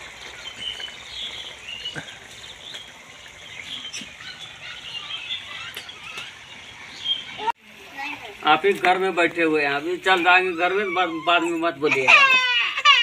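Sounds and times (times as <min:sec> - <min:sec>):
small birds chirping: 0:00.0 - 0:07.6.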